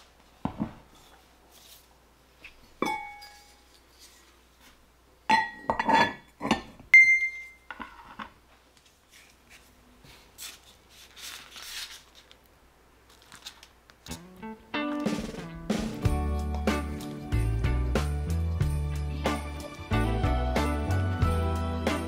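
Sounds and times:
kitchenware clinking: 2.8s - 3.8s, 5.3s - 8.3s.

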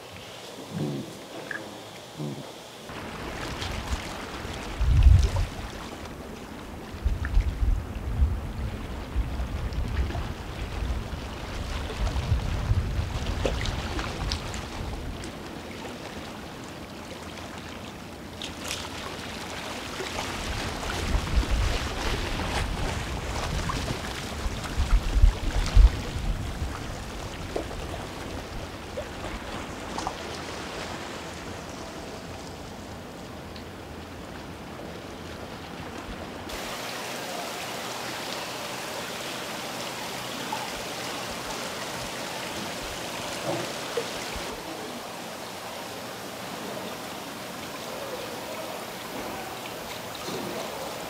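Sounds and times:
sea waves washing: 0.0s - 51.0s
wind buffeting microphone: 3.1s - 15.4s, 20.3s - 30.0s.

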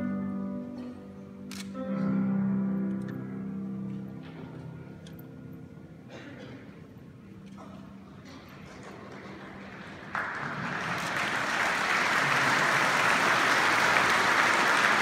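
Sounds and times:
audience applause: 8.7s - 15.0s.

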